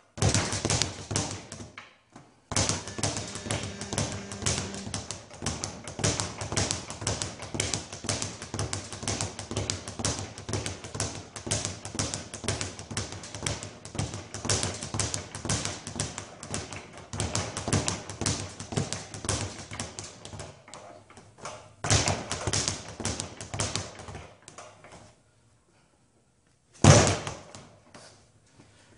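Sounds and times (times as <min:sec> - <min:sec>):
speed bag being punched: 0:00.1 - 0:01.7, 0:02.5 - 0:20.5, 0:21.8 - 0:24.2
loud bumps: 0:02.5 - 0:05.2.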